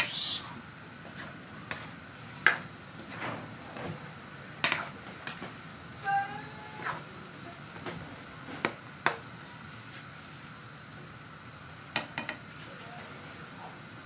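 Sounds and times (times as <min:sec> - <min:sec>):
simmering pot and gas burner hiss: 0:00.0 - 0:14.0
metal spatula scraping a wok: 0:04.6 - 0:05.4.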